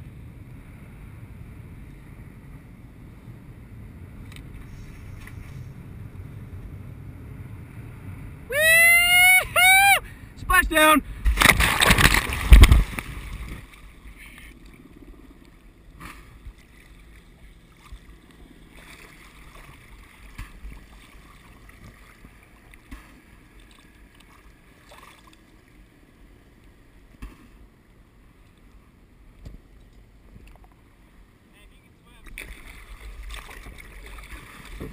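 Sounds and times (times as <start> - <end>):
faint outboard motor drone: 0.0 - 34.9
splash into water: 11.2 - 13.7, 32.4 - 34.9
water sloshing and lapping: 11.2 - 27.7, 32.2 - 34.9.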